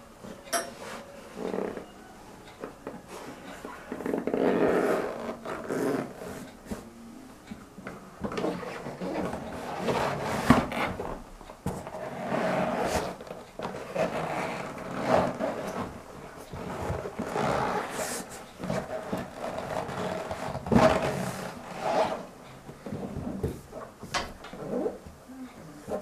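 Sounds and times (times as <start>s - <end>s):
rubber boots rubbing and scraping: 11.9s - 16.0s, 16.6s - 22.3s.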